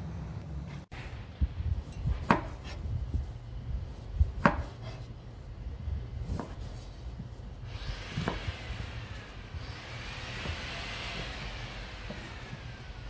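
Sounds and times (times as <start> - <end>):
low steady rumble: 0.0 - 13.0
knife cutting on cutting board: 4.2 - 5.1, 6.2 - 6.9.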